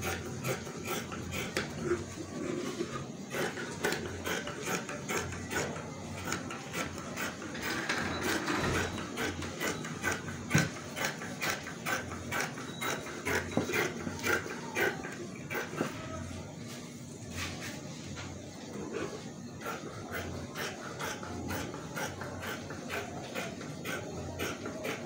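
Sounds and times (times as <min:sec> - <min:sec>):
shears snipping fabric: 0:03.3 - 0:16.0.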